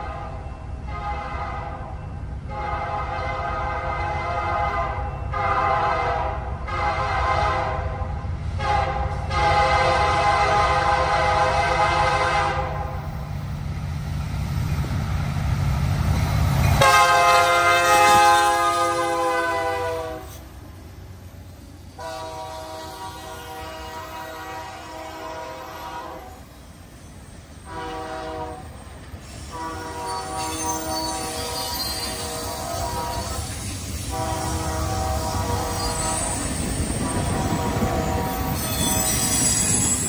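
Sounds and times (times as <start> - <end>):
locomotive horn blasts: 0.0 - 13.0, 16.8 - 20.4, 22.0 - 26.4, 27.6 - 28.8, 29.4 - 36.4, 37.3 - 39.4
train rumble: 0.0 - 40.0.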